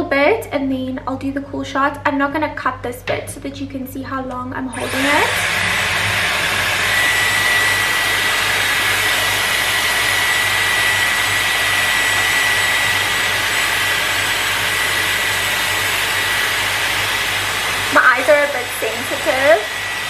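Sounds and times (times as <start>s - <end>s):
hair styler blowing air: 4.7s - 20.0s.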